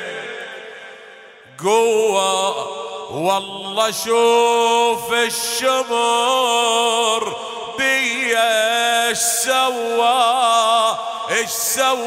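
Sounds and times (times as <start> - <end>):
man chanting: 0.0 - 12.0.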